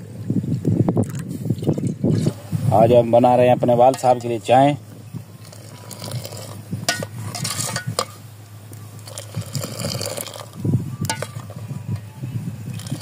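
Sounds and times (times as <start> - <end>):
tea pouring and splashing: 0.5 - 2.5, 5.4 - 6.6, 9.0 - 10.6, 12.7 - 13.0
metal ladle clinking on pot: 6.9 - 8.2, 11.0 - 11.5.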